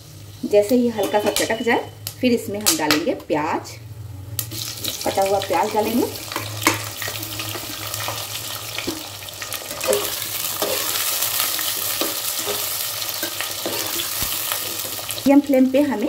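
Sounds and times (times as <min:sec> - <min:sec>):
onions sizzling in oil: 0:00.0 - 0:02.9, 0:04.3 - 0:16.0
metal spatula scraping pot: 0:01.0 - 0:01.7, 0:09.7 - 0:15.1.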